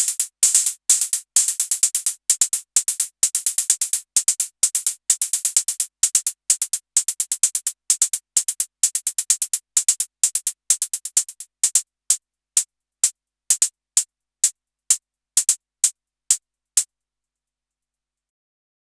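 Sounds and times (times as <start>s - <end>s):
synthesized hi-hats: 0.0s - 11.8s.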